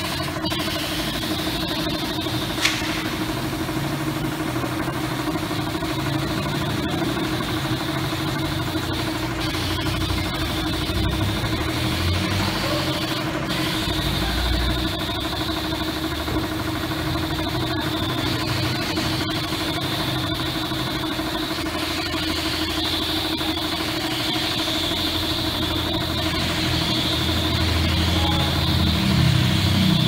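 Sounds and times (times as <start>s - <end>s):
high steady whine: 0.0s - 30.0s
motorcycle engine idling: 0.0s - 30.0s
short sharp click: 2.6s - 3.0s.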